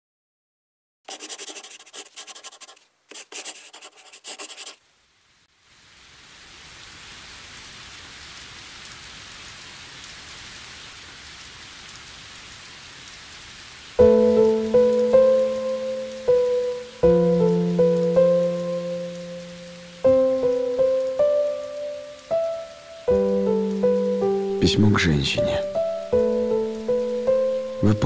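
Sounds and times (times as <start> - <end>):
pencil scratching on paper: 1.1 - 4.8.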